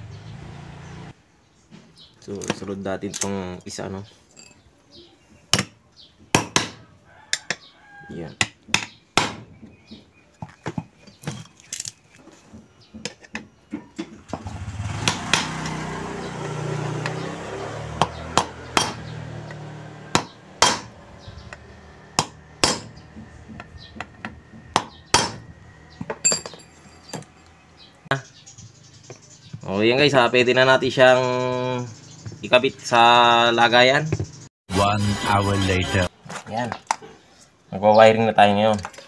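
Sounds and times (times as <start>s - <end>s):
metallic taps and clinks: 4.3s - 4.6s, 26.0s - 27.6s.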